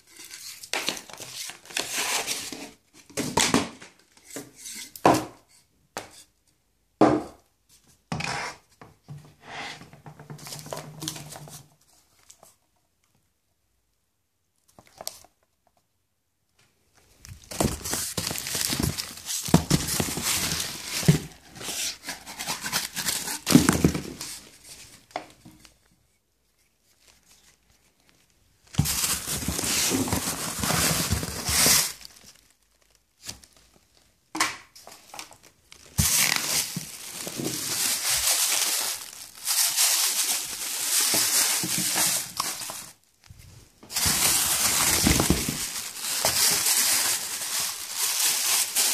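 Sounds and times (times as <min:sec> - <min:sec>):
plastic packaging crinkling: 0:17.0 - 0:25.8, 0:26.9 - 0:48.9.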